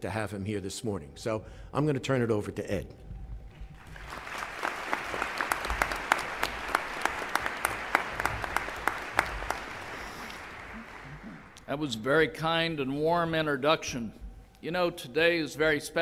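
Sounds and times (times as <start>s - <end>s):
audience applauding: 3.8s - 11.7s.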